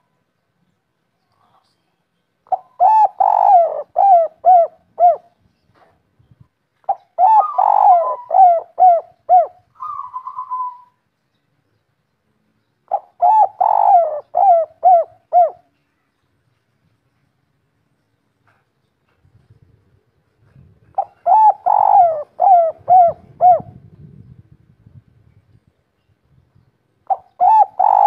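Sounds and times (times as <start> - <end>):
dove cooing: 2.5 - 5.4, 6.8 - 11.0, 12.9 - 15.7, 20.5 - 24.0, 27.0 - 28.0.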